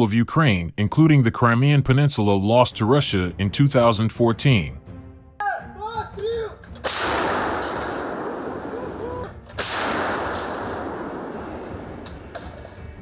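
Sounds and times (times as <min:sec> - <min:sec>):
person shouting: 0:05.4 - 0:06.6
artillery gun firing: 0:06.8 - 0:13.0.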